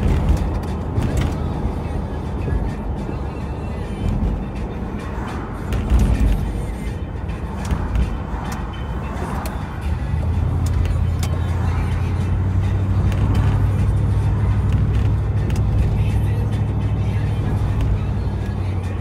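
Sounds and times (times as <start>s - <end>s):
engine and tyre rumble: 0.0s - 19.0s.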